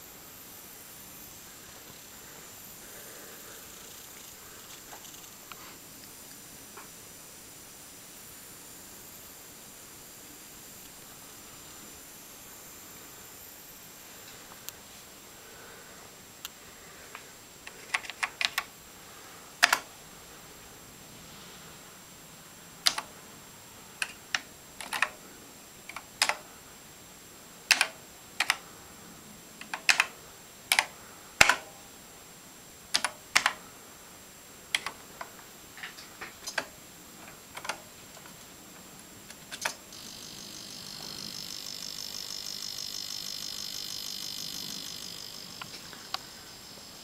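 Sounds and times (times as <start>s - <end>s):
faint high whine: 0.0s - 47.0s
keyboard keys clicking: 17.7s - 18.7s, 27.7s - 28.6s, 29.6s - 30.1s, 30.7s - 31.6s, 32.9s - 33.6s
buzzing tone: 39.9s - 47.0s.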